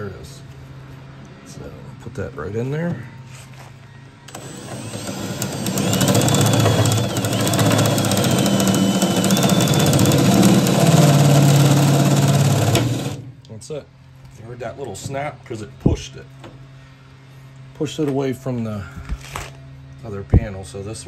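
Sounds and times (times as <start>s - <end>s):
cutter chattering: 4.3s - 13.2s
power drill cutting metal: 4.3s - 13.2s.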